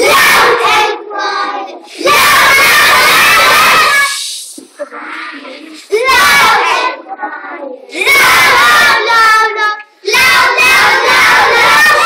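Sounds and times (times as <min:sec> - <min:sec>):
children singing together: 0:00.0 - 0:12.0.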